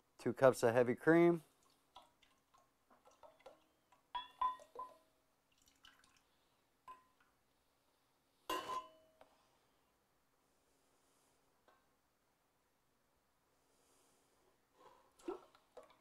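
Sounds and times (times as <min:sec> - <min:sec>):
drips and splashes: 0:01.5 - 0:03.7, 0:04.6 - 0:06.4
cup clinking on metal bowl: 0:04.1 - 0:05.0, 0:06.9 - 0:07.2, 0:08.5 - 0:09.2.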